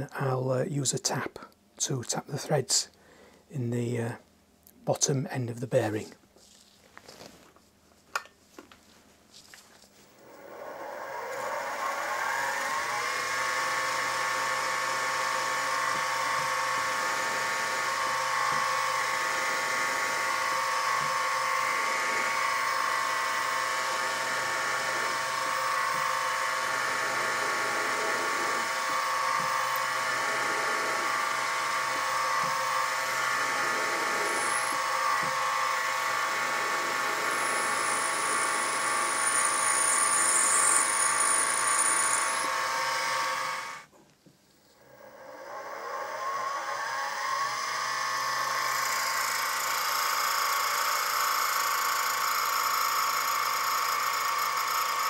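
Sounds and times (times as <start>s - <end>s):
mill motor whine: 10.1s - 43.9s, 44.6s - 55.0s
drill boring into brass: 10.2s - 43.9s, 44.8s - 55.0s.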